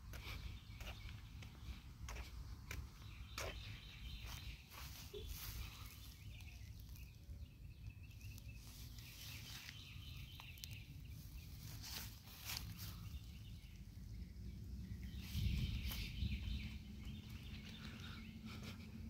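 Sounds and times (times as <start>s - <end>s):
footsteps on concrete: 0.0s - 5.6s
steady low rumble: 0.0s - 19.0s.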